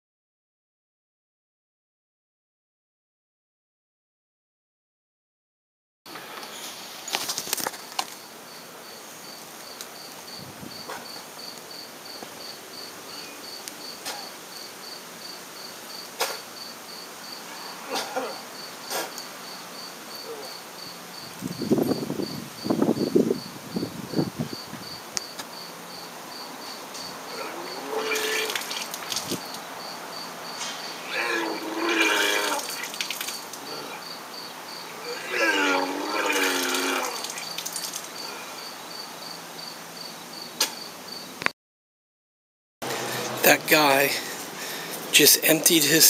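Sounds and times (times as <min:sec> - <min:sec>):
insect chirping: 0:06.1 - 0:41.5
man retching and vomiting: 0:17.8 - 0:19.1, 0:27.3 - 0:29.1, 0:31.0 - 0:34.0, 0:35.0 - 0:38.3.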